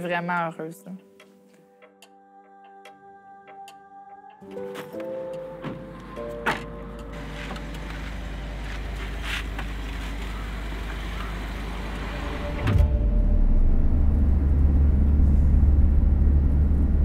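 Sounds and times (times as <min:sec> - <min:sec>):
car driving rumble from inside: 0:07.2 - 0:17.0.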